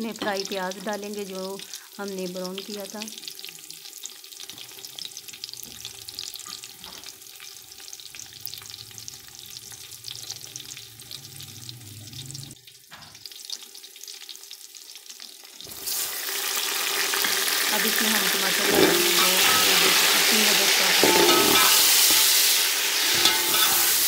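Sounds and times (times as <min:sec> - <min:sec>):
food sizzling in hot oil: 0:00.0 - 0:24.0
steel spoon stirring in pot: 0:18.7 - 0:20.3, 0:21.0 - 0:24.0.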